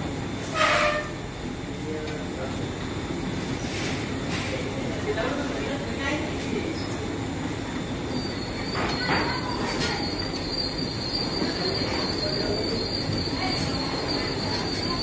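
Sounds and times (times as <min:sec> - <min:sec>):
fabric inspection machine whirring: 0:00.0 - 0:15.0
thin high-pitched whine: 0:08.1 - 0:15.0.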